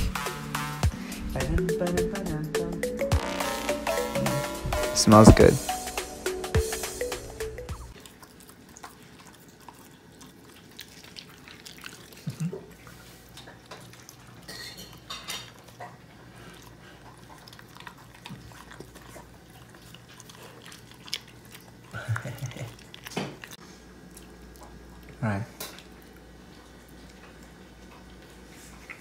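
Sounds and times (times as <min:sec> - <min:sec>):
dogs eating from metal bowls: 0:08.0 - 0:29.0.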